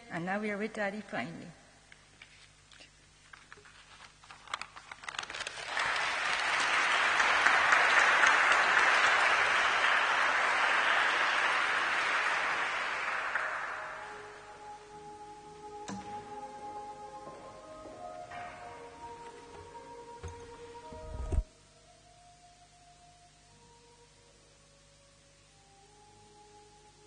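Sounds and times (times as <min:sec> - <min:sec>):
congregation applauding: 0:04.6 - 0:14.6.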